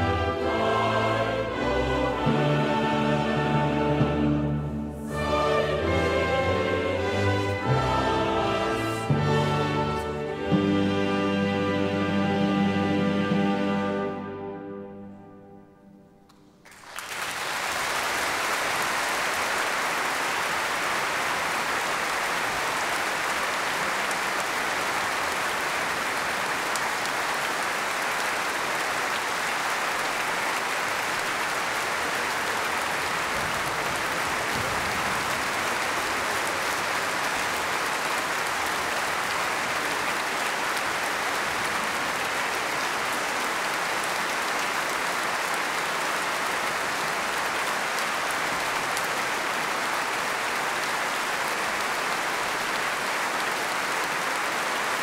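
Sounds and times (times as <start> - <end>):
music: 0.0 - 16.7
large audience applauding: 16.3 - 55.0.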